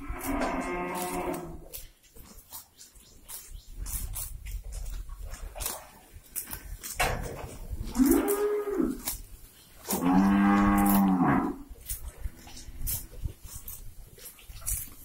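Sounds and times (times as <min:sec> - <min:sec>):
cows mooing: 0:00.0 - 0:01.6, 0:07.8 - 0:09.1, 0:09.9 - 0:13.2.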